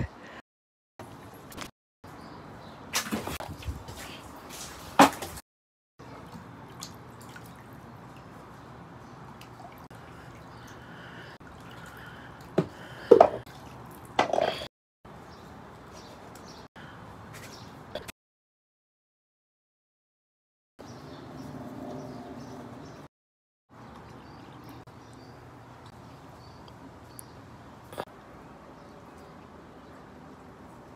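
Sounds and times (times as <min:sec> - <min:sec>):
water splashing and dripping: 0:06.0 - 0:14.2.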